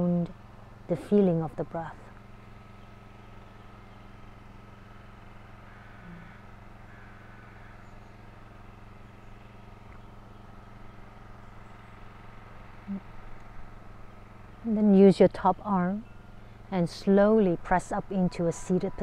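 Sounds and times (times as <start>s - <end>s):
steady low hum and hiss: 0.0s - 19.0s
faint short bird calls: 5.6s - 12.0s, 12.7s - 13.6s.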